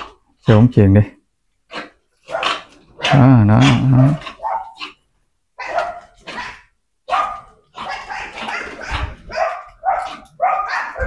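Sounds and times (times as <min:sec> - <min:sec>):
dogs barking: 0:01.7 - 0:05.0, 0:05.6 - 0:11.0.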